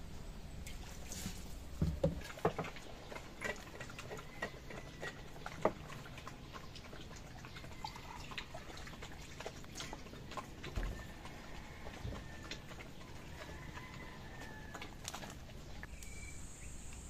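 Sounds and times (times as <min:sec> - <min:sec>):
dogs chewing food: 0:01.3 - 0:16.4.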